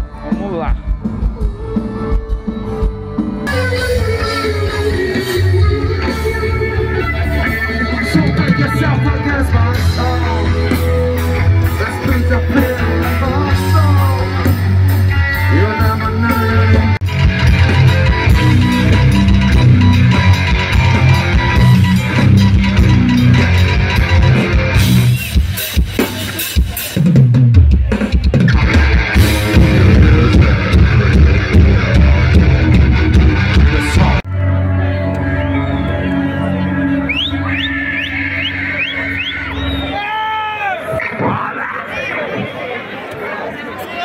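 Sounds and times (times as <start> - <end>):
live rock band playing: 0.0 - 42.7
person singing: 1.2 - 17.0, 29.2 - 35.0.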